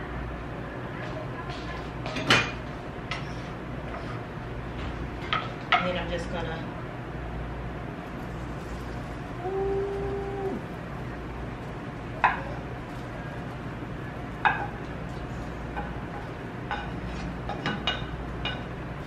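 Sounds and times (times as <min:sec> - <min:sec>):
low hum: 0:07.8 - 0:15.9.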